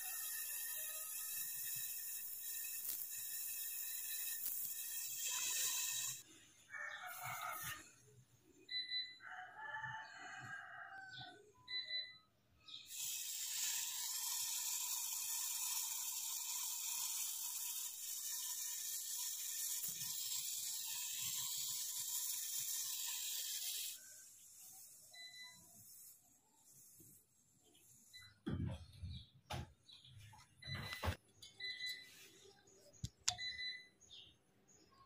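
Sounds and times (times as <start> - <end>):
torch flame hissing: 12.9 - 24.0.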